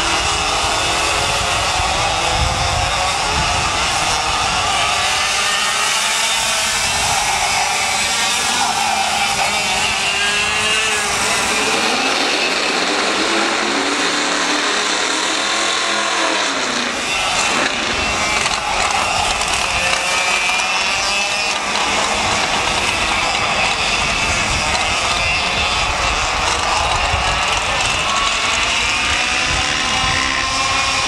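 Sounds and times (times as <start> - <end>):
kart engines racing: 0.0 - 31.0.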